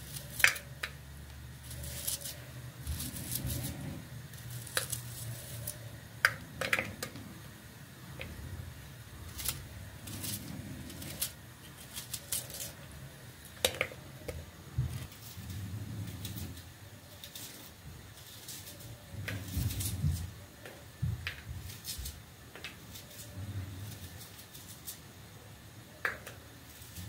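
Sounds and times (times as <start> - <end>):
papery skins rustling: 1.6 - 5.9, 9.2 - 13.6.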